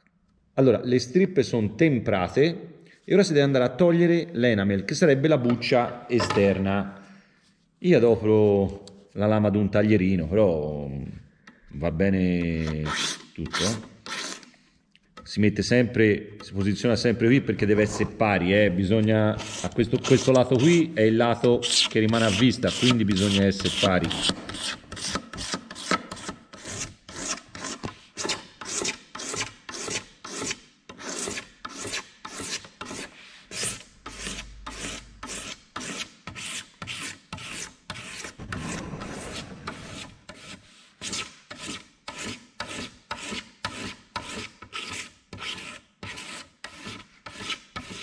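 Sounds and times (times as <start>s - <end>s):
knife blade scraping bamboo: 12.4s - 14.5s, 19.4s - 20.8s, 21.6s - 38.5s, 39.7s - 48.0s.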